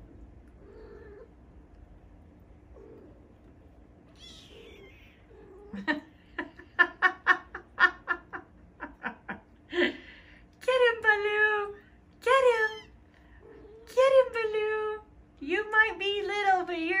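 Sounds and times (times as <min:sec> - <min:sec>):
kitten mewing: 0:04.2 - 0:05.8.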